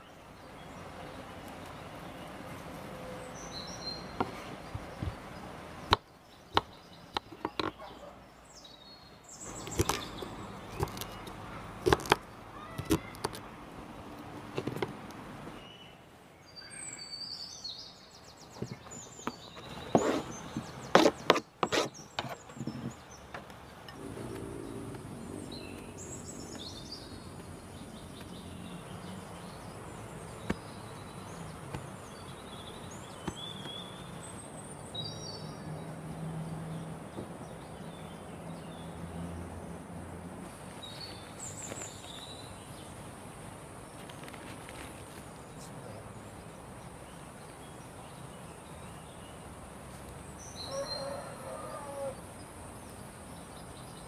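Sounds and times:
birds chirping: 0.0s - 54.0s
sharp knocks and snaps: 9.6s - 13.5s.

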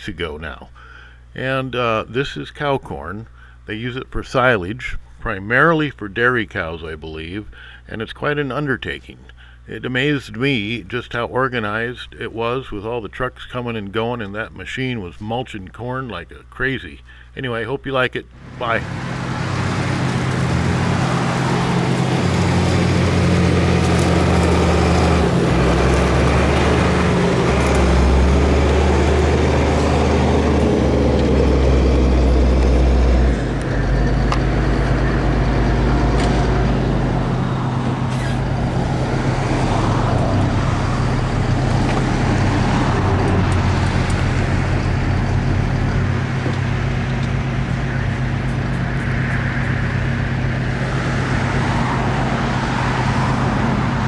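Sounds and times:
forage harvester engine humming: 0.0s - 54.0s.

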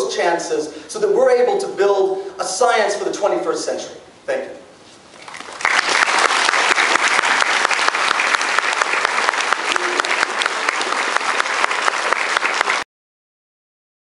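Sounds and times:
audience applauding: 5.2s - 12.9s.

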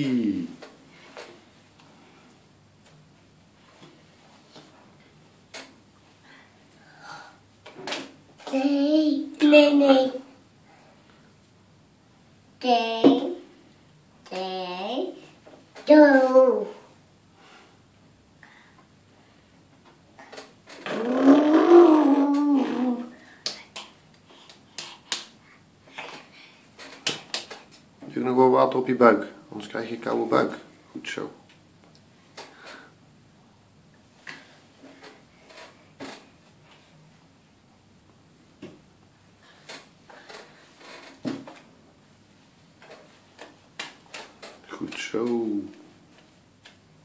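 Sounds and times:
drawn-out voice sound: 20.8s - 23.3s.

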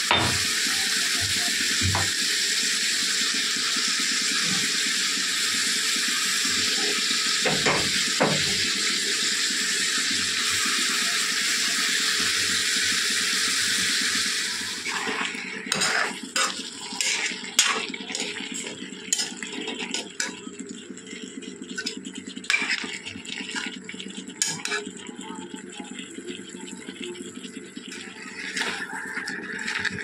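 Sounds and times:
food sizzling in a pan: 0.0s - 30.0s
metal ladle stirring in pan: 14.8s - 20.4s, 21.7s - 23.8s, 24.4s - 24.9s.

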